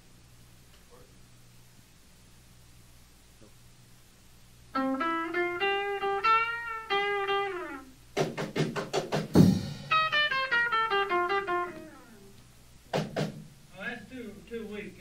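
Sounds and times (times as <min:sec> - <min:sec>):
guitar single notes: 0:04.8 - 0:08.0, 0:09.9 - 0:12.4
guitar strummed chords: 0:04.8 - 0:08.4, 0:09.4 - 0:12.4.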